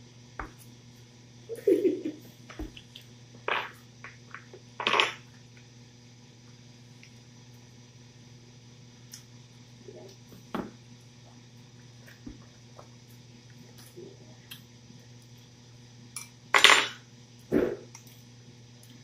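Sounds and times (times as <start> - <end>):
tableware clattering: 16.2 - 17.0.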